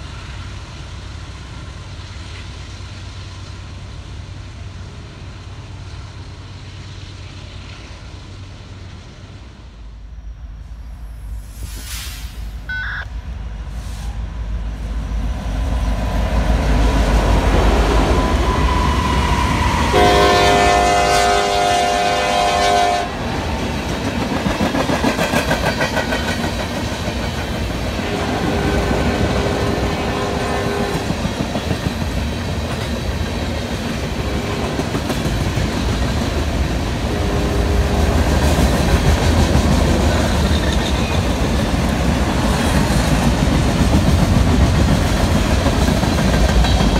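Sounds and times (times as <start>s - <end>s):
locomotive rumble: 12.1s - 46.9s
train air horn: 17.7s - 23.2s, 28.0s - 31.3s, 34.2s - 35.0s, 37.0s - 38.3s
train wheels clacking over rail joints: 23.5s - 46.9s.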